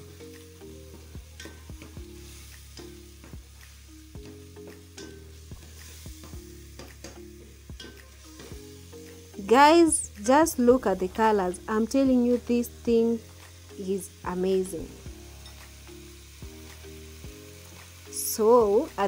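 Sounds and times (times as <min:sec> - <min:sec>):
faint background music: 0:00.0 - 0:19.0
sauce sizzling in pot: 0:00.0 - 0:19.0.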